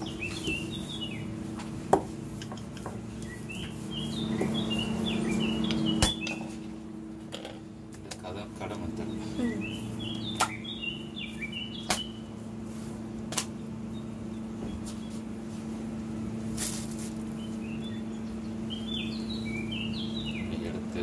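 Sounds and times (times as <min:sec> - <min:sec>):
bird chirping: 0:00.0 - 0:01.4, 0:02.5 - 0:06.7, 0:08.3 - 0:12.4, 0:17.3 - 0:21.0
steady low hum: 0:00.0 - 0:21.0.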